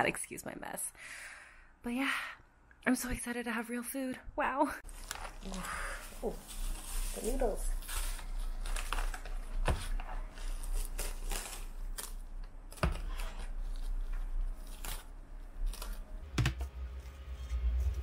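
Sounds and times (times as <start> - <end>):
cling film crinkling and tearing: 4.8 - 16.3
plastic container clicks and knocks: 16.4 - 16.7.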